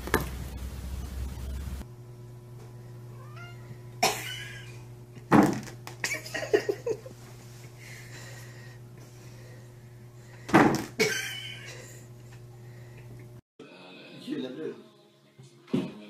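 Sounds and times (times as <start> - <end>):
cat meowing: 3.1 - 3.8.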